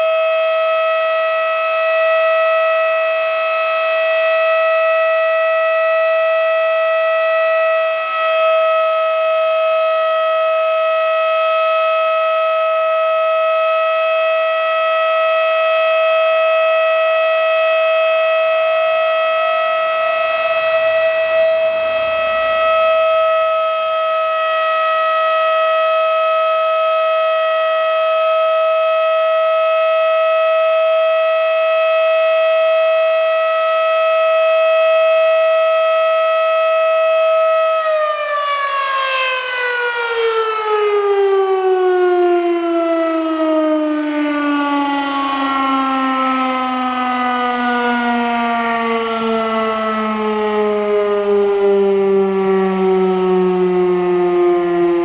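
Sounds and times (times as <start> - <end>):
siren steady tone winding down: 0.0 - 55.0.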